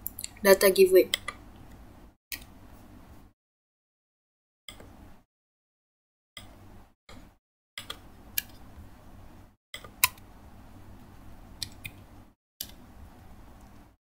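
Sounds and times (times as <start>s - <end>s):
keyboard and mouse clicks: 7.1s - 8.6s, 9.8s - 10.2s, 11.6s - 12.0s.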